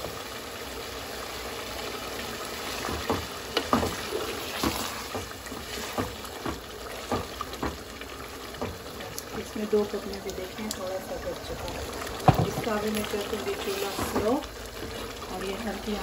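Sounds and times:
curry sizzling in pot: 0.0 - 16.0
spatula scraping pot: 2.8 - 7.1.

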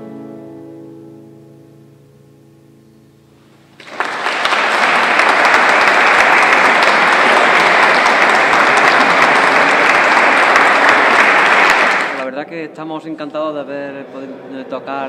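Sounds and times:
guitar and piano: 0.0 - 11.8
audience applause: 3.8 - 12.2.

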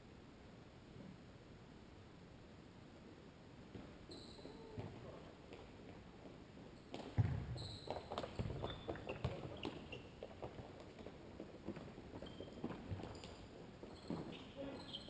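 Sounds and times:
shoes squeaking on court floor: 4.1 - 5.4, 6.8 - 11.0, 11.7 - 15.0.

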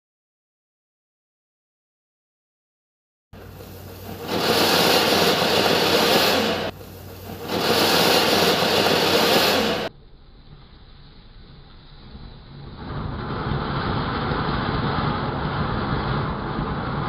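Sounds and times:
firework fountain hissing: 3.4 - 17.0.

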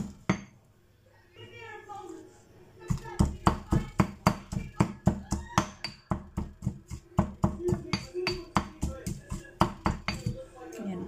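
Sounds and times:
pestle pounding in stone mortar: 0.0 - 0.5, 2.9 - 10.4.

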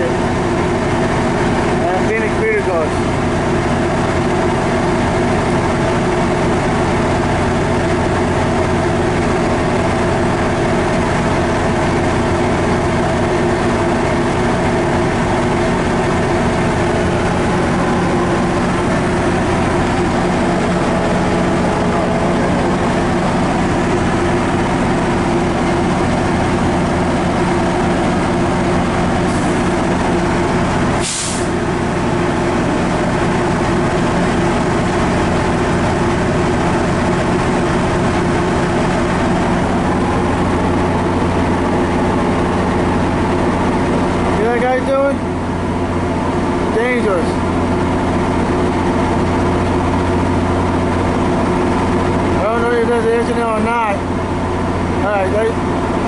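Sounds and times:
diesel locomotive engine hum: 0.0 - 56.0
air brake hiss: 31.0 - 31.5.

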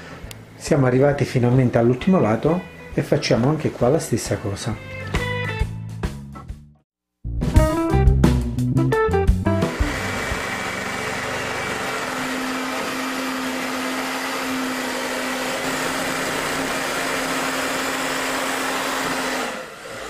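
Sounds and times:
hair dryer blowing: 9.6 - 20.0.

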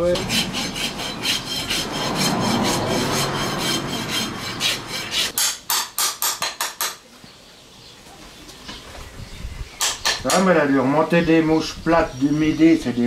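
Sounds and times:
rasp filing hoof: 0.0 - 5.6.

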